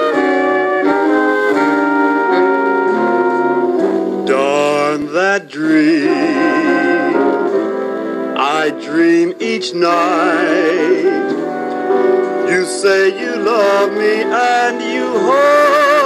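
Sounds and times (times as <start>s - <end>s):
brass ensemble chords: 0.0s - 16.0s
man singing: 4.2s - 7.6s, 8.3s - 11.4s, 12.4s - 16.0s.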